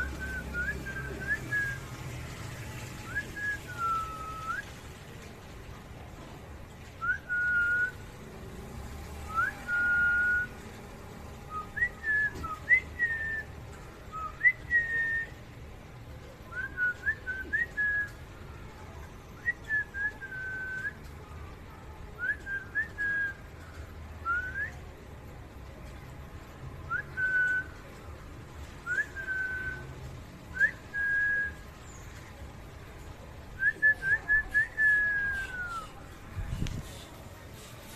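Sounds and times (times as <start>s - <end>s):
person whistling: 33.6s - 36.0s.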